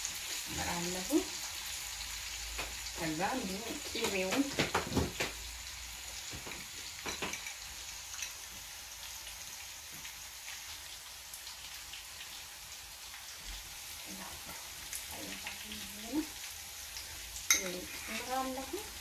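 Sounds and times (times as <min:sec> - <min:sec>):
food sizzling in a pan: 0:00.0 - 0:19.0.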